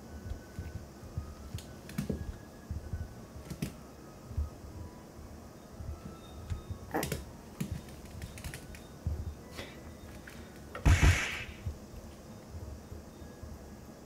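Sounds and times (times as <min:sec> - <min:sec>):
paws and claws tapping on floor: 0:00.2 - 0:04.6.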